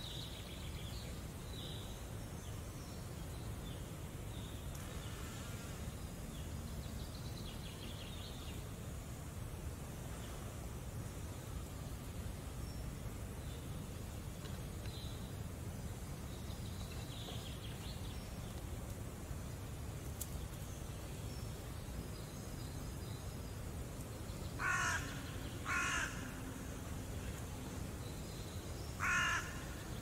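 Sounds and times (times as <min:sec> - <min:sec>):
harsh bird calls: 0:24.6 - 0:26.6, 0:28.9 - 0:30.0.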